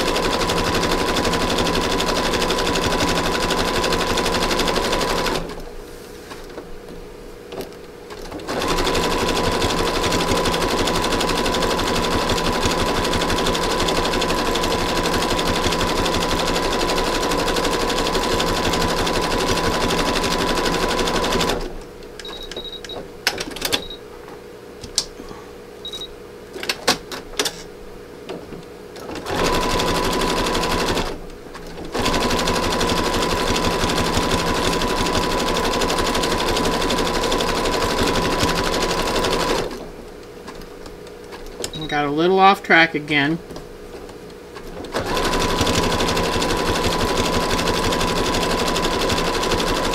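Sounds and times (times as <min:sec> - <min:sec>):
sewing machine running: 0:00.0 - 0:05.6, 0:08.2 - 0:21.8, 0:29.1 - 0:31.2, 0:31.8 - 0:39.9, 0:44.8 - 0:49.9
short beeps: 0:25.8 - 0:26.1.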